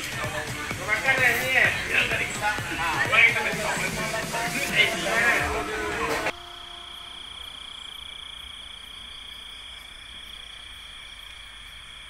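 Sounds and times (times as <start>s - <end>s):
crickets trilling: 6.3s - 12.0s.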